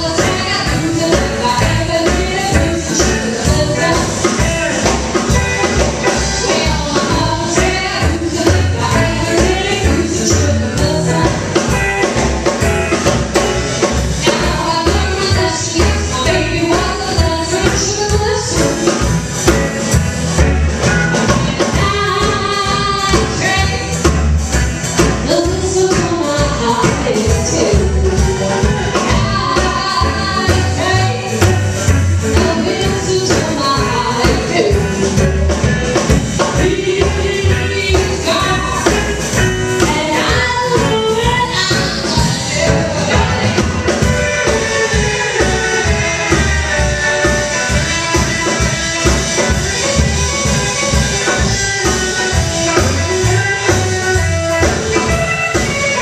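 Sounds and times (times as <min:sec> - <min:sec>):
woman singing: 0:00.0 - 0:11.8, 0:13.9 - 0:19.2, 0:21.2 - 0:24.1, 0:25.0 - 0:46.3
live band music: 0:00.0 - 0:56.0
percussion beat: 0:00.0 - 0:56.0
upright double bass: 0:00.0 - 0:56.0.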